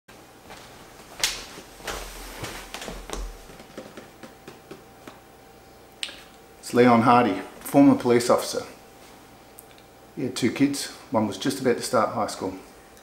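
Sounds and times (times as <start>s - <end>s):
small taps and rustles: 0.5s - 5.2s
wooden chair scuffing and bumping: 0.5s - 5.2s.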